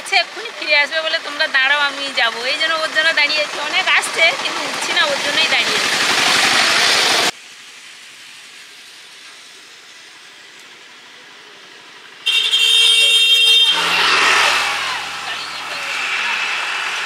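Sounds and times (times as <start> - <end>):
voices: 0.0 - 6.0, 13.7 - 17.0
vehicle horn: 12.2 - 15.5.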